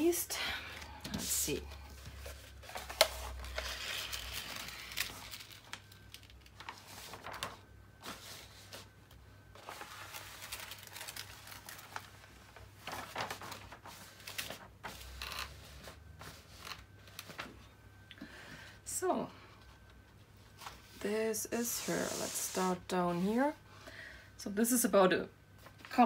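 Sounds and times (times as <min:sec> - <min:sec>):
paper rustling and crinkling: 0:01.0 - 0:17.7.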